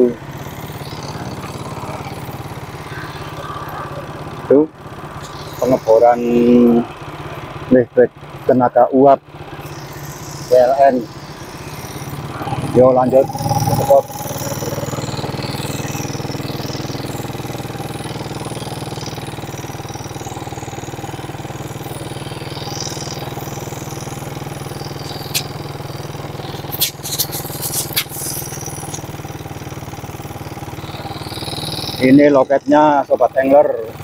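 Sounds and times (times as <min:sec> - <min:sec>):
vehicle engine running: 0:00.0 - 0:34.0
sharp clicks: 0:25.0 - 0:25.6, 0:26.5 - 0:29.1.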